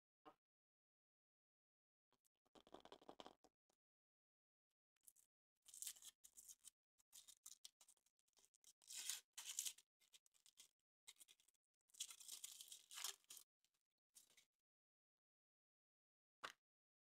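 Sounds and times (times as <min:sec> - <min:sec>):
foil wrapper tearing and crinkling: 0:08.8 - 0:09.8, 0:12.0 - 0:13.4.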